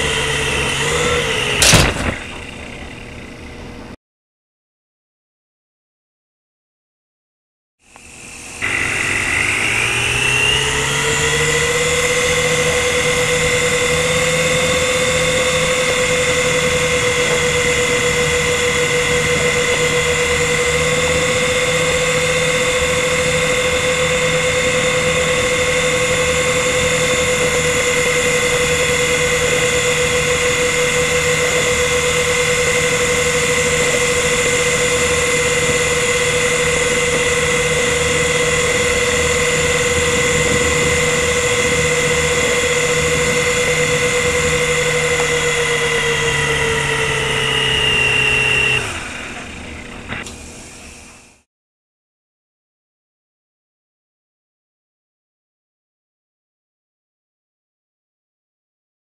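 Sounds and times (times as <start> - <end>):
toy helicopter rotor whine: 0.0 - 3.4, 7.8 - 51.5.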